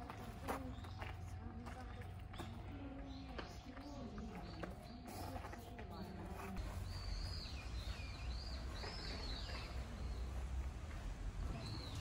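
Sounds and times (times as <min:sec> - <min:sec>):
bird chirping: 0:06.6 - 0:10.4.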